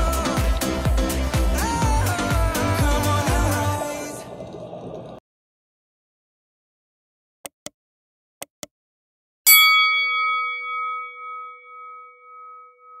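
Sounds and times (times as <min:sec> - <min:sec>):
notification bell ding: 0:09.5 - 0:13.0.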